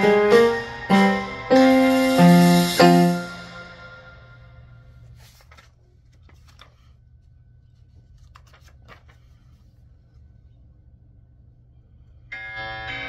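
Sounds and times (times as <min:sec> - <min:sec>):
faint paper rustles: 0:04.8 - 0:10.8.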